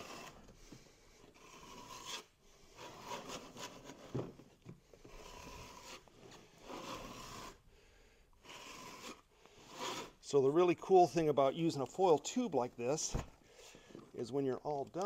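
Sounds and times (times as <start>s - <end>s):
trowel scraping adhesive: 0.0s - 0.4s, 1.4s - 4.0s, 5.1s - 7.6s, 8.4s - 10.2s.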